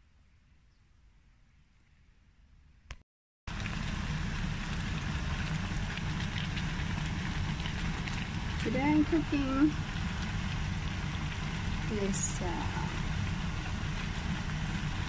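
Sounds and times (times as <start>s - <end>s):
bones sizzling in a hot pan: 3.6s - 15.0s.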